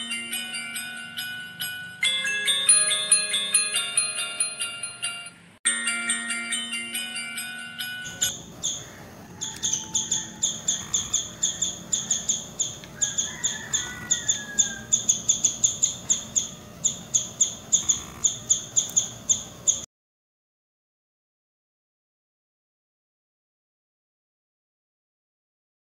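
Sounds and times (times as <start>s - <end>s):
background music: 0.0s - 8.4s
squirrel chirping: 8.0s - 19.9s.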